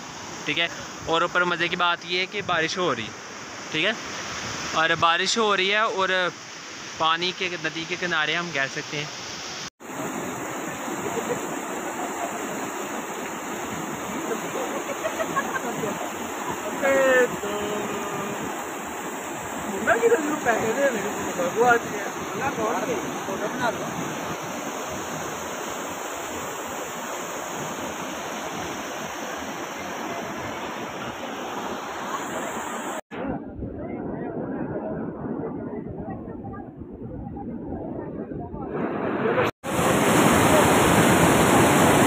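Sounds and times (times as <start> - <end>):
river rushing over boulders: 0.0 - 33.0, 38.8 - 42.0.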